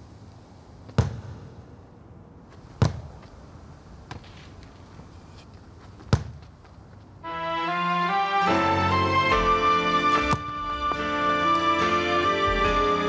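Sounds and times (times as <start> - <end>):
soccer ball kicked: 0.9 - 1.4, 2.5 - 3.4, 5.9 - 7.0, 10.2 - 10.9
music: 7.2 - 13.0.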